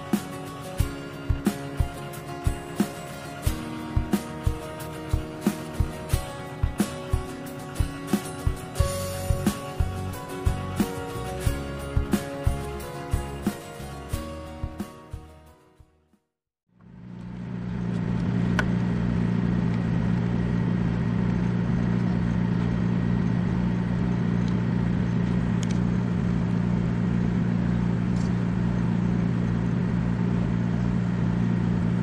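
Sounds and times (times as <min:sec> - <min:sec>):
ship engine drone: 0:16.8 - 0:32.0.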